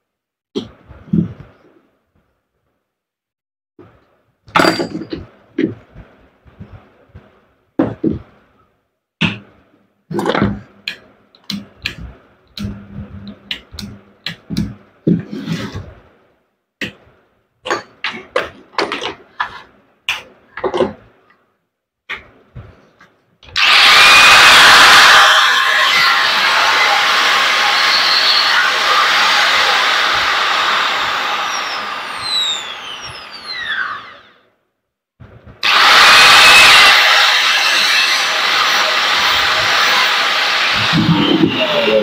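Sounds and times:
tool parts clicking and clattering: 4.5s - 5.3s.

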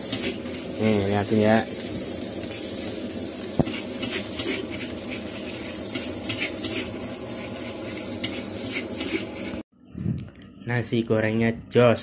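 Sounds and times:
metal spatula scraping: 0.0s - 3.0s, 3.6s - 9.6s
rice sizzling in a wok: 0.0s - 9.7s.

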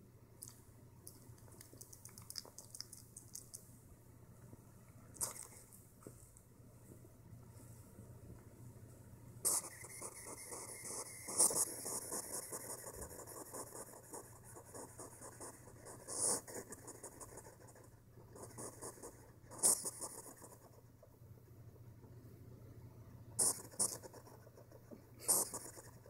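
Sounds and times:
hedgehog chewing crunchily: 0.4s - 3.6s, 5.2s - 5.7s.

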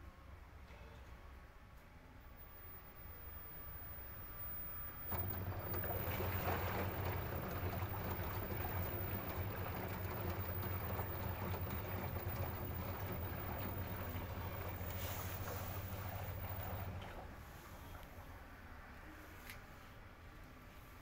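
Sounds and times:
washing machine drum turning: 4.9s - 17.3s.

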